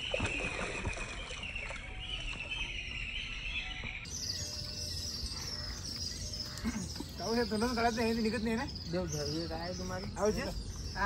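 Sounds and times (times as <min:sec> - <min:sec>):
fish splashing in shallow water: 0:00.0 - 0:03.0.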